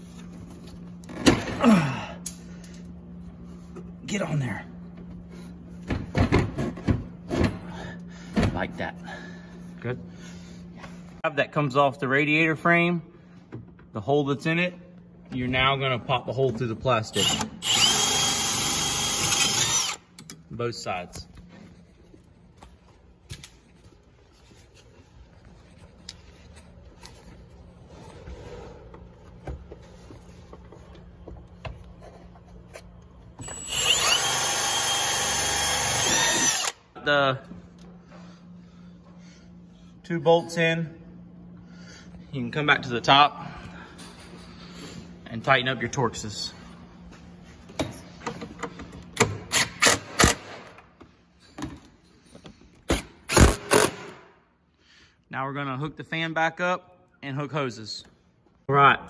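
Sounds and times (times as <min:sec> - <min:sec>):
cordless power ratchet whine: 0:17.2 - 0:20.2, 0:33.4 - 0:36.8.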